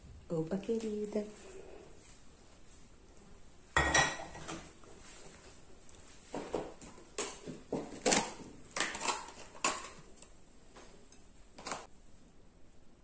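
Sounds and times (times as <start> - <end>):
tableware knocking and clattering: 3.8 - 4.7.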